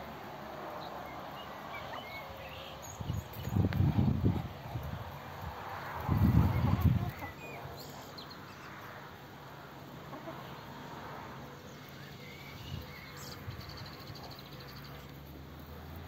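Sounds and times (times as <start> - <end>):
faint bird chirps: 11.8 - 15.1.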